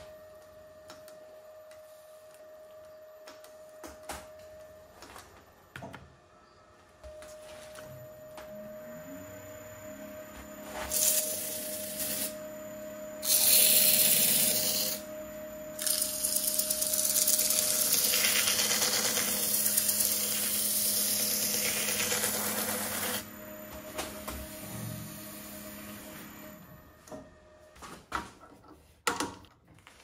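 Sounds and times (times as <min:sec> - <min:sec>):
wood lathe humming: 0:09.0 - 0:12.4, 0:13.1 - 0:23.5.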